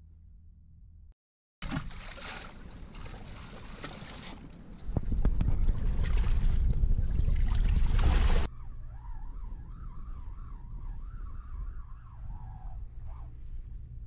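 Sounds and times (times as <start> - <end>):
seawater sloshing and surging: 1.6 - 8.5
wind buffeting microphone: 2.8 - 14.0.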